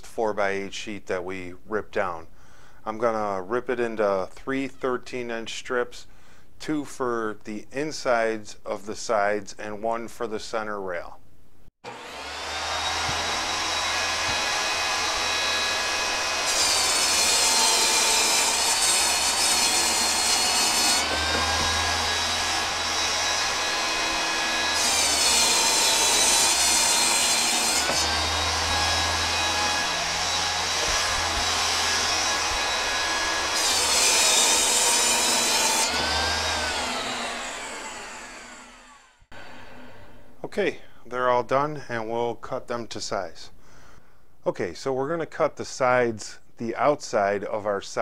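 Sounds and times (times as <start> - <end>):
saw winding down: 11.8 - 40.3
saw blade hiss cutting: 11.9 - 40.0
table saw motor whine: 11.9 - 40.3.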